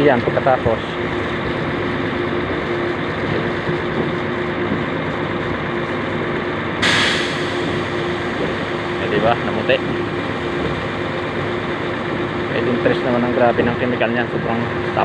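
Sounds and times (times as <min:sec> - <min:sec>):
engine drone: 0:00.0 - 0:15.0
high-pressure water spray hissing: 0:06.8 - 0:09.2.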